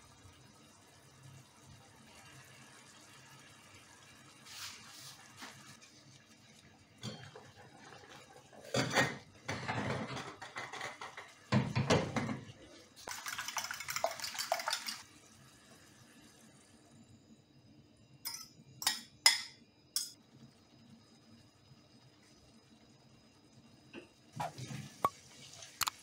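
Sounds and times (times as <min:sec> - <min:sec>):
metal pots and pans clattering: 0:07.0 - 0:12.5.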